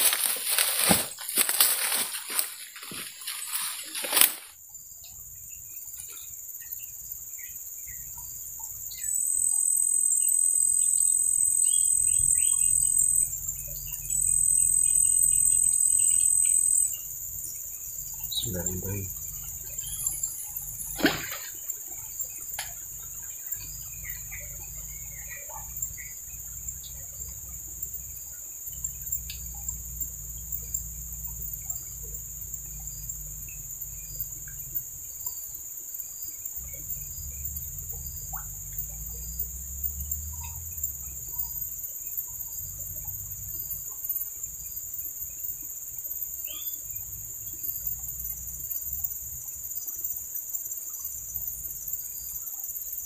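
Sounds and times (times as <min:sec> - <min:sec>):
insect chorus droning: 0:00.0 - 0:53.0
faint chirp: 0:04.7 - 0:44.3, 0:45.0 - 0:49.2.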